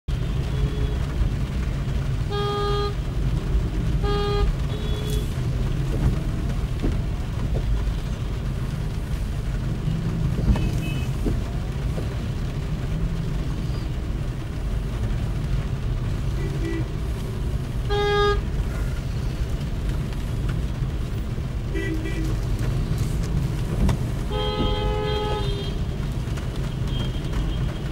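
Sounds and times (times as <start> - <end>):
road traffic rumble: 0.1 - 27.9
car horn honks: 2.3 - 3.0, 4.0 - 5.4, 17.9 - 18.4, 24.3 - 25.8.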